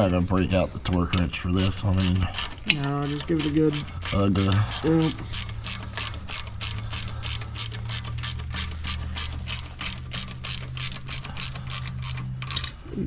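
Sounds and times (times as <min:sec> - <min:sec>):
ratchet wrench clicking: 0:00.9 - 0:12.8.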